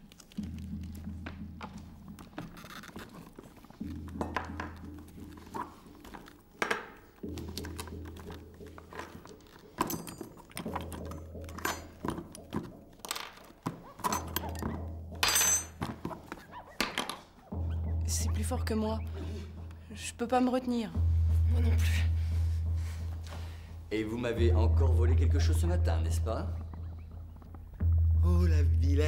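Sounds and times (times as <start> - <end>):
handbag rustling: 0.0 - 16.7
objects knocking and clinking: 0.4 - 17.3
background music with bass: 20.9 - 29.0.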